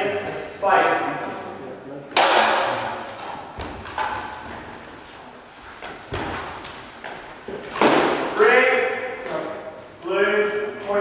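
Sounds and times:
feet thudding on hall floor: 3.2s - 8.3s.

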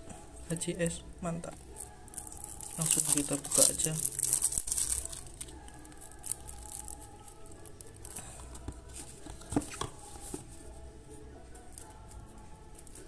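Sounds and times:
paper cigarette pack rustling: 1.8s - 10.5s.

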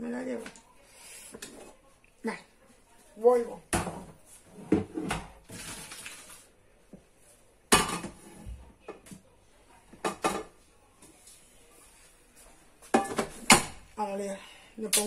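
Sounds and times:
pots and utensils clattering: 3.7s - 6.4s, 7.7s - 8.5s, 12.9s - 13.8s.

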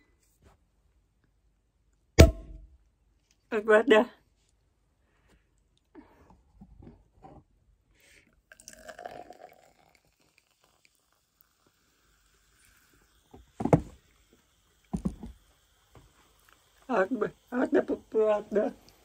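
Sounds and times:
loud thumps: 2.2s - 2.7s
sparkling wine pouring and foaming: 8.4s - 19.0s.

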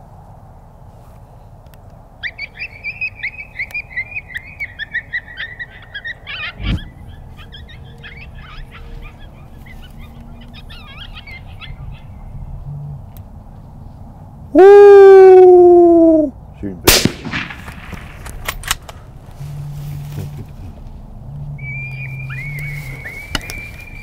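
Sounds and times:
coyote-style yips and yelps: 2.2s - 12.5s, 21.6s - 24.0s.

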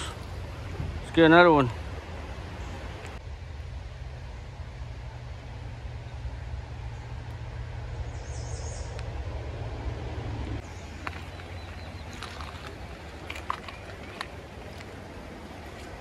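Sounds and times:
footsteps on stones: 10.6s - 15.0s.

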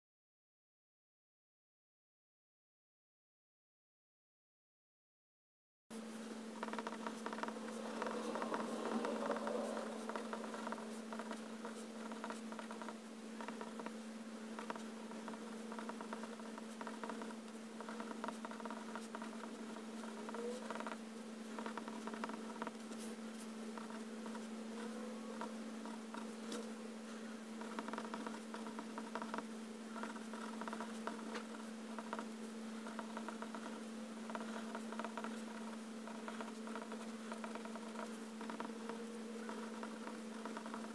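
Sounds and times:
steady low hum: 5.9s - 40.9s
pen nib scratching paper: 6.6s - 26.7s, 27.6s - 40.9s.

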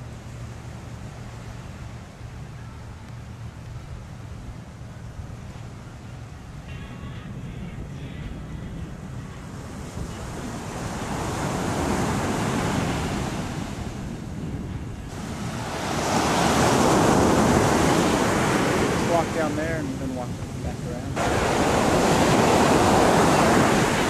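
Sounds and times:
surf breaking on sandy beach: 9.3s - 24.0s.

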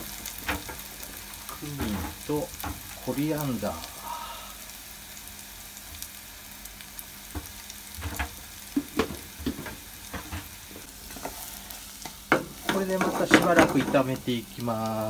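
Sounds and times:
food sizzling in oil: 0.0s - 15.0s
wooden spatula scraping pan: 9.5s - 11.6s, 12.3s - 14.1s.

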